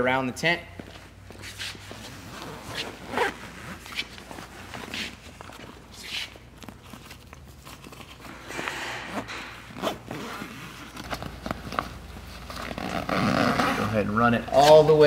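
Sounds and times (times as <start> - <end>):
stiff vinyl cover rustling: 1.0 - 8.4, 9.2 - 15.0
zipper being pulled: 1.4 - 5.2, 7.8 - 14.8.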